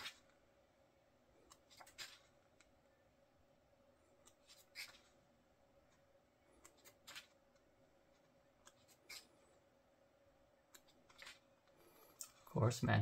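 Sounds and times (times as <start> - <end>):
book pages turning: 1.5 - 2.7, 4.3 - 5.2, 6.6 - 7.4, 10.8 - 11.5.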